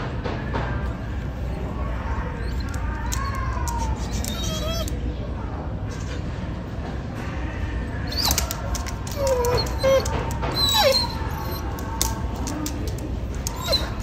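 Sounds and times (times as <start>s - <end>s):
faint background music: 0.0s - 14.0s
squeaky animal cries: 4.1s - 4.9s, 9.2s - 11.7s.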